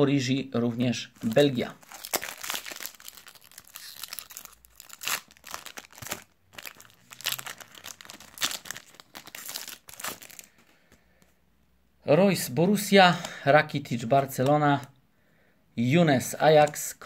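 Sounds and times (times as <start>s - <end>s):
foil packet crinkling: 1.2s - 10.7s.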